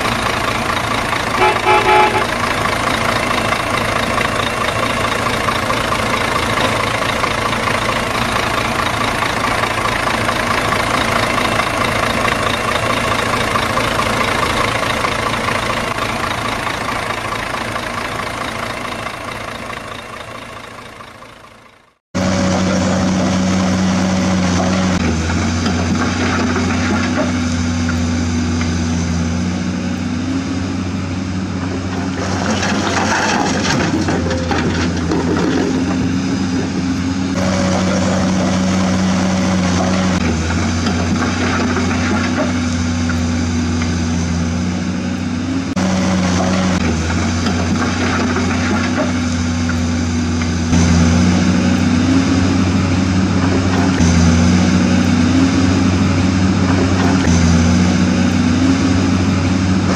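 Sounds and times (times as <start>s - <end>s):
low engine idle: 0.0s - 22.0s
engine sound: 0.0s - 59.9s.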